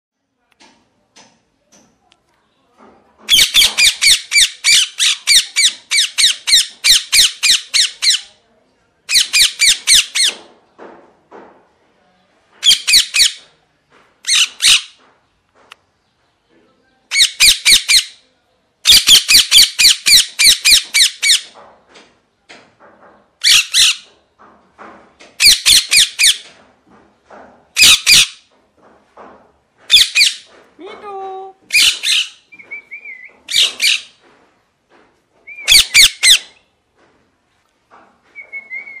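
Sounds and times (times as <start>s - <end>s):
parakeet squawking: 3.3s - 8.3s, 14.3s - 14.9s, 23.4s - 24.0s, 27.8s - 28.4s, 29.9s - 30.5s, 31.7s - 32.4s, 33.1s - 34.1s, 35.6s - 36.6s.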